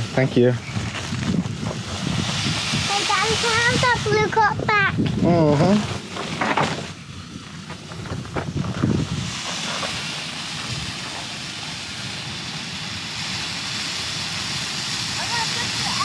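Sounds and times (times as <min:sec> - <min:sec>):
gas stove burner hissing: 0:00.0 - 0:16.0.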